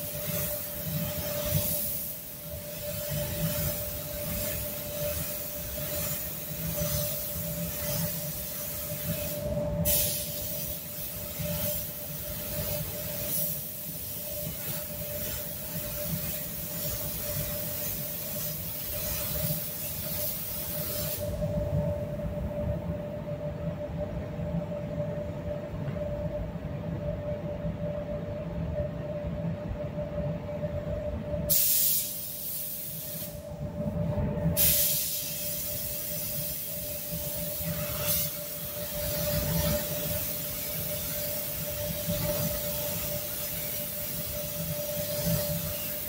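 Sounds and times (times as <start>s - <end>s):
spray gun hissing: 0.0s - 21.4s, 31.5s - 33.4s, 34.6s - 46.0s
ventilation rumble and hum: 0.0s - 46.0s.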